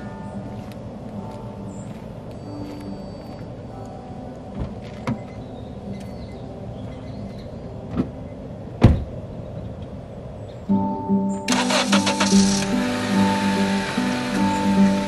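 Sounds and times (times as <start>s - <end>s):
car door shutting: 8.8s - 9.1s.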